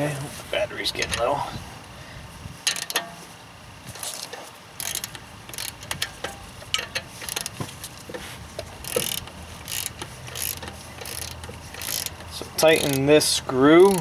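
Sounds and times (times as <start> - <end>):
ratchet wrench clicking: 2.6 - 3.0, 4.0 - 7.6, 8.6 - 14.0.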